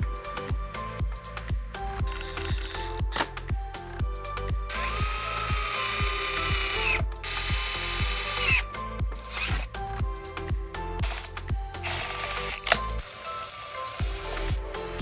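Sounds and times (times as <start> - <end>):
background music with steady beat: 0.0 - 15.0
cordless drill whining: 4.7 - 9.7, 11.0 - 14.6.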